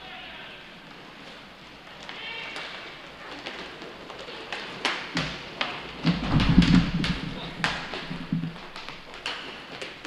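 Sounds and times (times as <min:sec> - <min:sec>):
rumble of hockey play: 0:00.0 - 0:10.0
sticks and puck clicking: 0:02.0 - 0:10.0.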